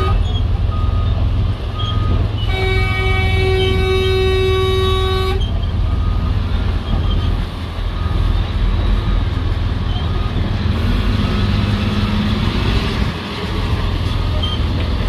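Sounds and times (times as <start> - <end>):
vehicle horn: 0.0 - 0.3, 2.4 - 5.5
heavy machinery engines rumbling: 0.0 - 15.0.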